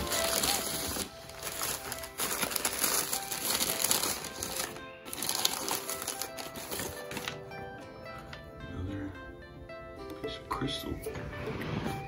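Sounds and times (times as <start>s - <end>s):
newspaper rustling and crinkling: 0.0s - 7.4s
background music: 0.0s - 12.0s.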